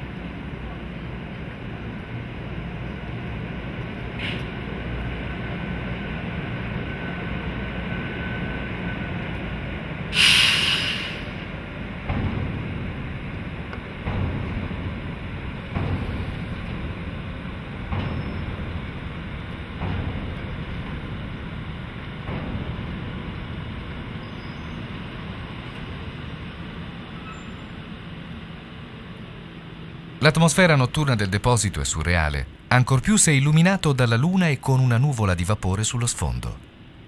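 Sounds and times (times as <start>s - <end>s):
locomotive low rumble: 0.0s - 37.0s
loud hiss: 10.1s - 11.6s
wheels clunking over rail joints: 11.4s - 30.2s.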